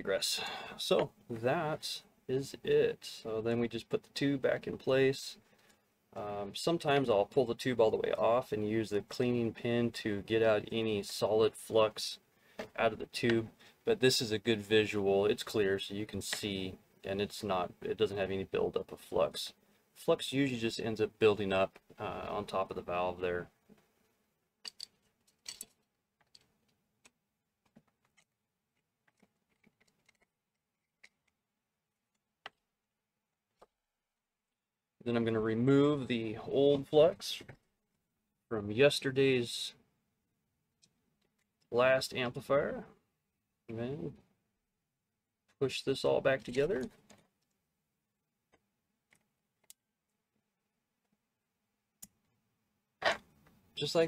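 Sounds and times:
plastic parts clicking: 24.6s - 31.4s.

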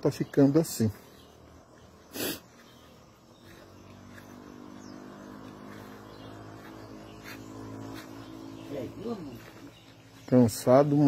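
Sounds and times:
sharp breath through the nose: 2.0s - 2.6s.

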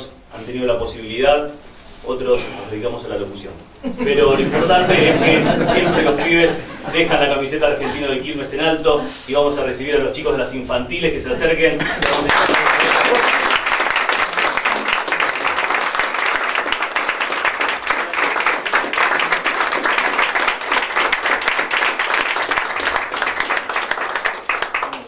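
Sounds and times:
audience applauding: 12.0s - 25.0s.

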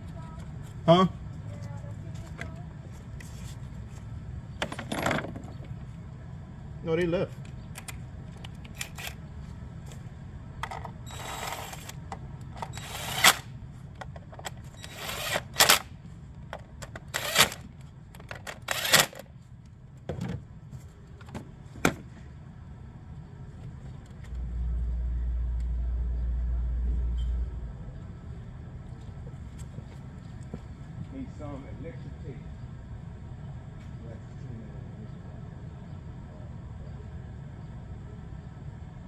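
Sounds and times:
steady low hum: 0.0s - 39.0s
tools clicking and clattering: 4.6s - 5.8s.

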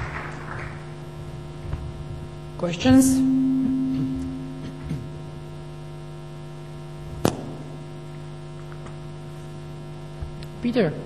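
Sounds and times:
electrical hum: 0.0s - 11.0s
low tone: 1.6s - 6.0s.

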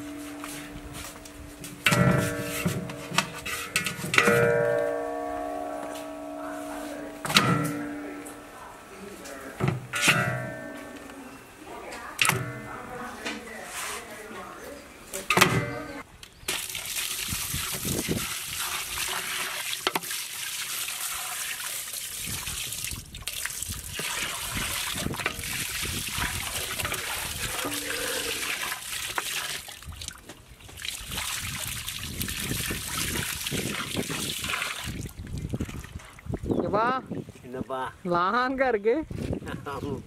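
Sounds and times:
water pouring into basin: 16.5s - 30.2s, 30.8s - 36.2s
water splashing as meat is rubbed: 16.5s - 36.1s.

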